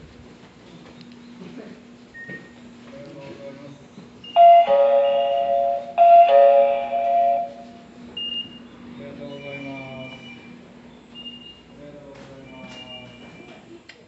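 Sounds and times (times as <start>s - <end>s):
short beeps: 9.3s - 10.5s.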